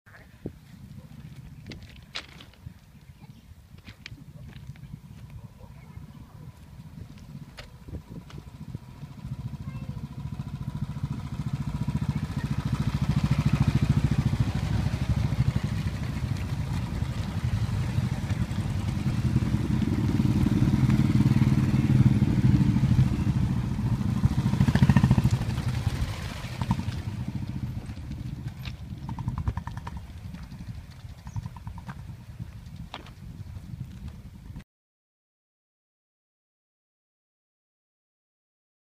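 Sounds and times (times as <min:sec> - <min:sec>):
motorcycles riding past: 0:04.3 - 0:33.8.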